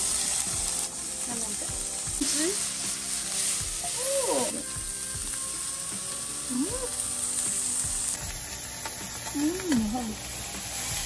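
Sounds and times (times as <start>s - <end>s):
background music: 0.0s - 11.0s
meat sizzling in a frying pan: 0.0s - 11.0s.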